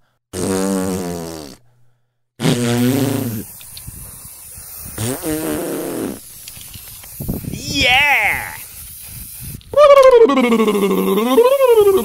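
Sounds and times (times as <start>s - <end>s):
aerosol spray can hissing: 2.9s - 12.0s
low vocal sounds: 7.5s - 8.6s
person shouting yeah: 7.5s - 8.6s.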